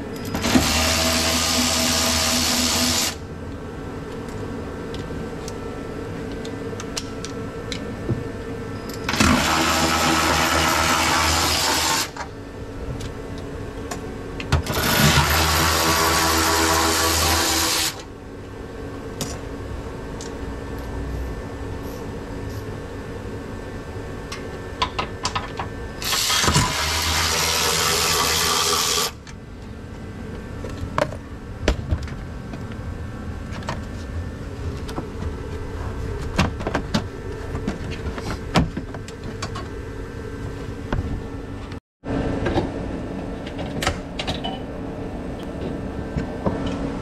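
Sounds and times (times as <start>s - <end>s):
cordless power tool whirring: 0.4s - 3.2s, 14.6s - 18.0s, 26.0s - 29.2s
steady low hum: 1.2s - 47.0s
tools and metal parts clinking: 8.8s - 9.2s.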